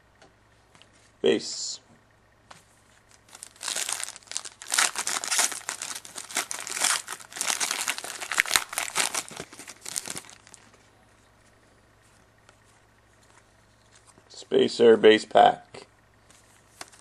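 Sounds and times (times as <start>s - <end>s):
wrapper crinkling and tearing: 3.1s - 10.8s.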